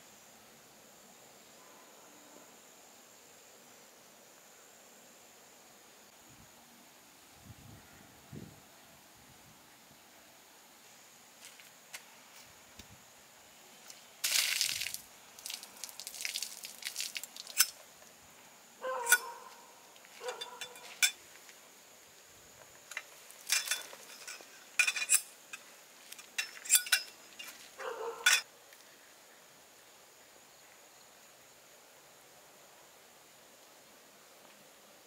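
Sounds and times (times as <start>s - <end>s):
metal tent poles clanking: 19.0s - 19.4s, 20.2s - 21.2s, 22.9s - 28.4s.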